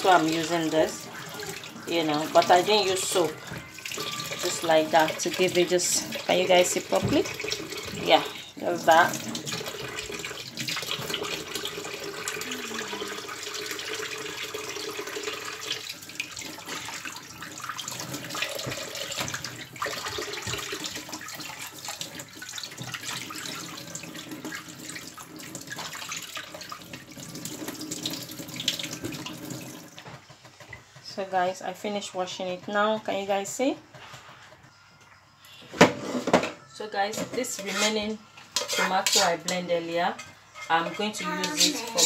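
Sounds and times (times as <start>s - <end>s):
tap water running into bowl: 0.0s - 30.8s.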